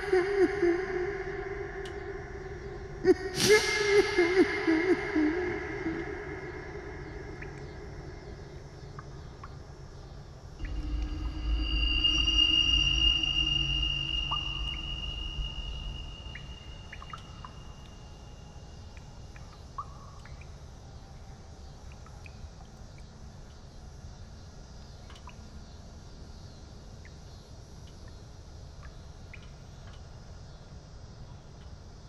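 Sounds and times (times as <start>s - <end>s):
low rumble: 10.6s - 17.6s
faint short chirps: 10.6s - 17.7s
sustained high drone: 10.6s - 17.7s.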